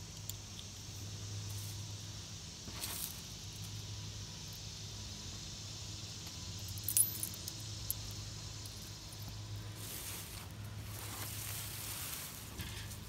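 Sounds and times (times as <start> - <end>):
low background hum: 0.0 - 13.0
rustle of dry leaves: 1.5 - 3.8, 8.3 - 13.0.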